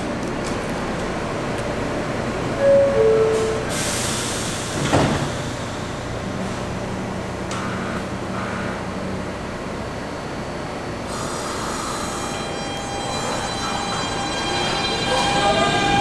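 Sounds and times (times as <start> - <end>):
low hum of standing train: 0.0 - 16.0
subway door chime: 2.5 - 6.1, 11.2 - 16.0
sliding doors thudding shut: 4.8 - 5.4.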